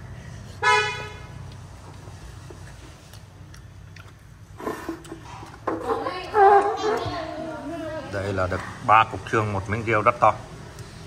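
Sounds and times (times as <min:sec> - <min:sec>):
vehicle horn toot: 0:00.6 - 0:01.3
chewing on meat and bone: 0:01.4 - 0:05.6.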